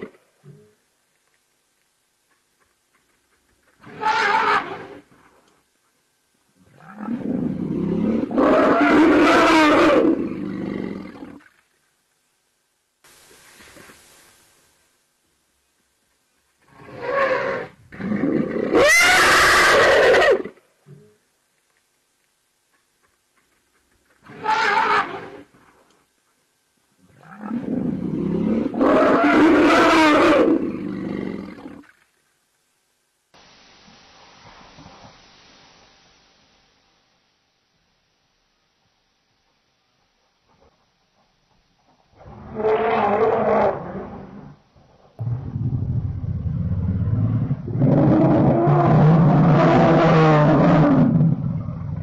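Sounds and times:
large animal roaring: 0:42.2 - 0:44.6, 0:45.2 - 0:52.0.

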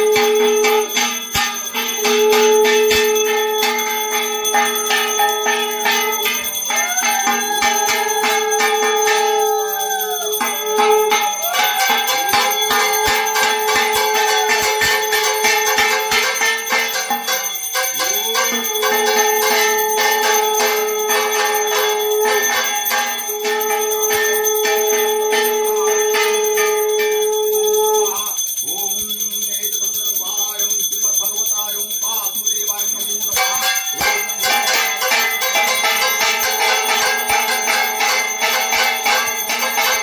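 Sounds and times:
long held tone: 0:00.0 - 0:29.0
hand bell ringing rapidly: 0:00.0 - 0:40.0.

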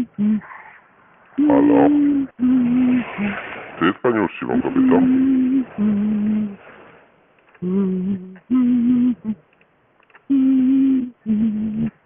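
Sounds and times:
woman humming over telephone: 0:00.0 - 0:00.5, 0:01.4 - 0:03.0, 0:04.8 - 0:06.6, 0:07.6 - 0:09.4, 0:10.3 - 0:12.0.

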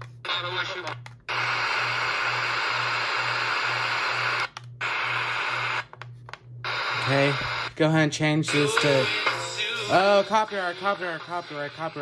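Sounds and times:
radio static hiss: 0:00.2 - 0:05.8, 0:06.7 - 0:12.0
low pulsing hum: 0:01.0 - 0:08.5.

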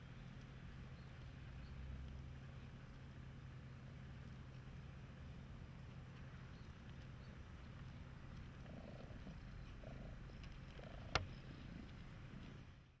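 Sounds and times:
cat purring faintly: 0:04.4 - 0:12.7.

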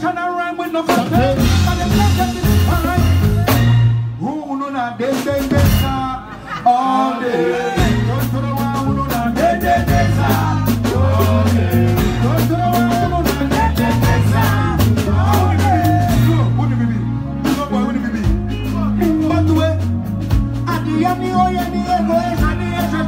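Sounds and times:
bass line: 0:00.0 - 0:06.5, 0:07.5 - 0:23.0
drums: 0:00.0 - 0:06.6, 0:07.6 - 0:23.0
people singing into microphones: 0:06.3 - 0:16.3.

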